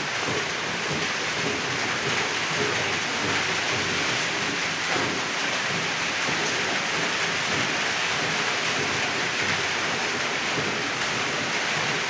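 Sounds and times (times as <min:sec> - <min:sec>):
steady rain: 0:00.0 - 0:12.0.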